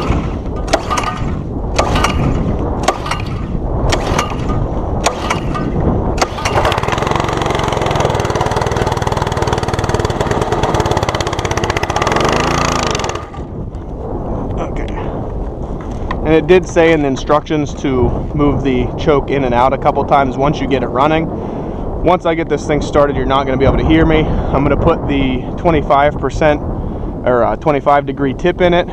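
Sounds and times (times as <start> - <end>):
pull-start cord pulls: 0.0 - 2.2, 2.8 - 13.5
gas engine running: 6.2 - 13.5.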